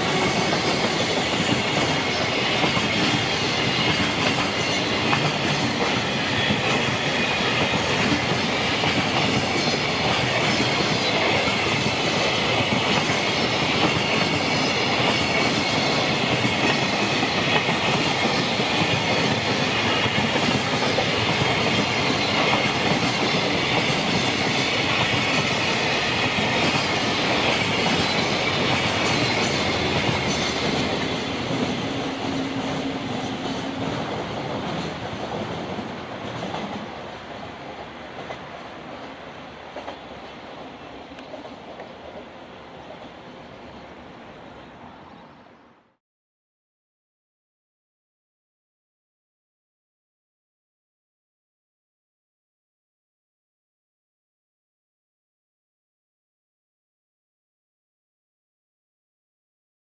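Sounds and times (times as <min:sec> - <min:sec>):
steel wheels clattering on rails: 0:00.0 - 0:37.0.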